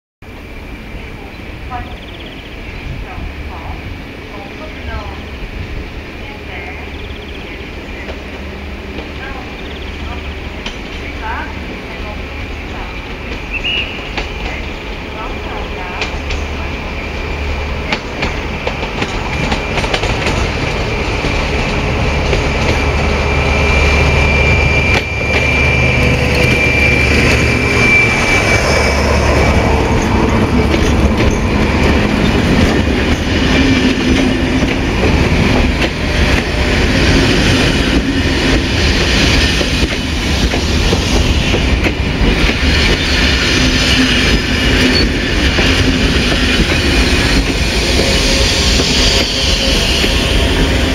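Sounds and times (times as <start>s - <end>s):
passing train rumble: 0.2s - 50.9s
train wheels clattering over rail joints: 17.8s - 23.0s, 29.7s - 50.9s
thin high whine: 22.7s - 30.4s.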